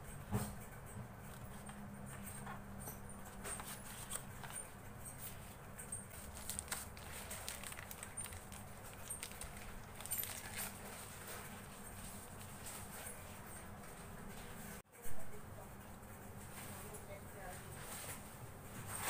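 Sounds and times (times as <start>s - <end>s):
paper and plastic rustling: 3.2s - 14.6s.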